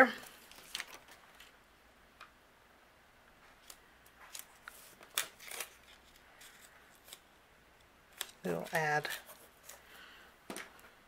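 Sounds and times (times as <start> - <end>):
plastic stencil rustling: 0.2 - 1.6, 3.4 - 7.3.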